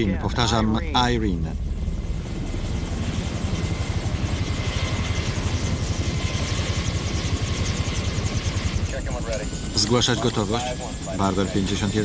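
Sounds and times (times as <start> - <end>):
helicopter rotor beating: 0.0 - 12.0
turbine whine: 0.0 - 12.0.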